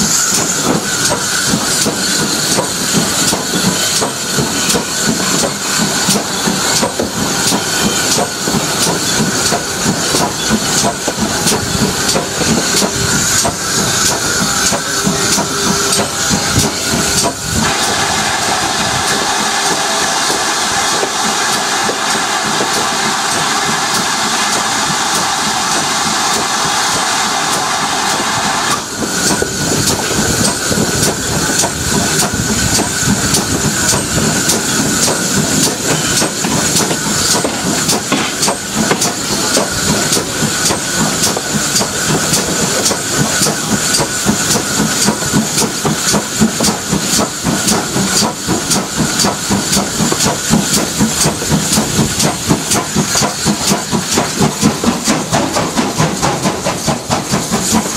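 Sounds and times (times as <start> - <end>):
steam engine beat: 0.0 - 57.9
steam hissing: 0.0 - 57.9.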